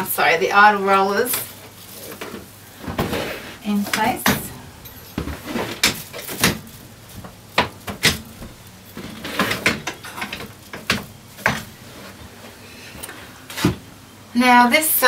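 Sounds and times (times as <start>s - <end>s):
rollers knocking and clunking: 0.8s - 12.6s.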